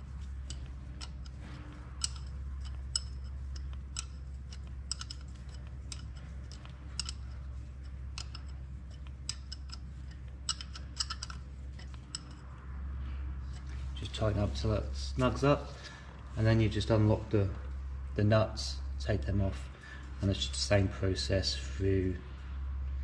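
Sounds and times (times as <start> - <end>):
spanner clicking on metal nuts: 0.0 - 12.7
low steady hum: 0.0 - 23.0.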